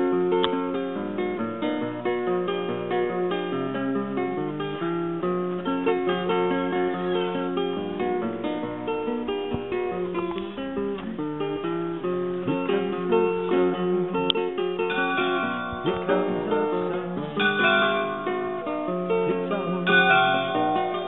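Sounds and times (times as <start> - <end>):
acoustic guitar playing: 0.0 - 21.0.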